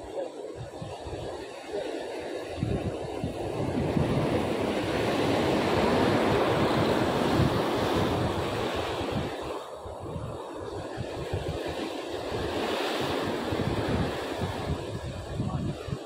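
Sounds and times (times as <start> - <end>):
wind buffeting microphone: 0.0 - 16.0
waves breaking on rocks: 1.6 - 9.8.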